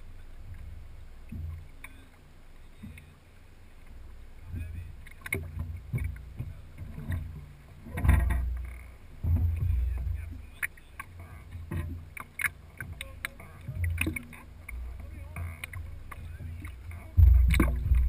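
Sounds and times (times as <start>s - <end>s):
boat low rumbling thumps: 0.0s - 18.0s
small clicks and knocks: 5.0s - 18.0s.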